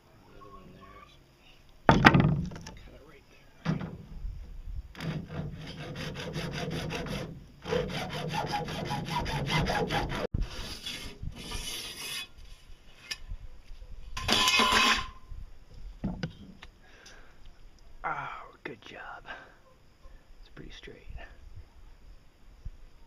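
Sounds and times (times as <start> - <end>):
hacksaw cutting pipe: 5.0 - 12.3
metal bar scraping out of pipe: 10.2 - 13.2, 14.2 - 15.2.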